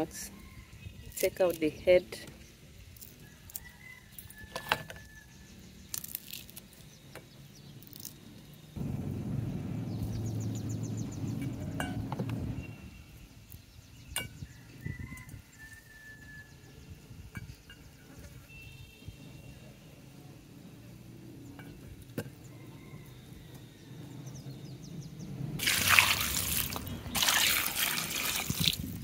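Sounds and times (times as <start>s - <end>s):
dried fish snapping and crackling: 5.8s - 6.9s
low rumble: 8.8s - 13.1s.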